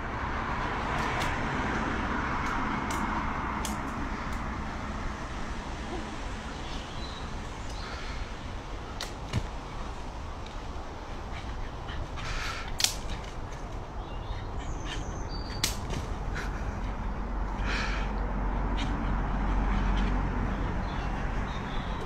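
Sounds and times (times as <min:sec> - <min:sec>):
twigs cracking: 0:02.3 - 0:04.6, 0:08.7 - 0:10.8, 0:12.3 - 0:14.0, 0:15.5 - 0:16.4.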